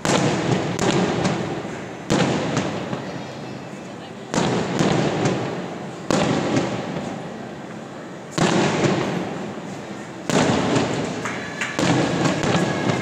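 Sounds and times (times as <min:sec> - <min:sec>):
firework shells bursting with booms: 0:00.0 - 0:03.2, 0:04.3 - 0:07.3, 0:08.3 - 0:09.6, 0:10.2 - 0:13.0.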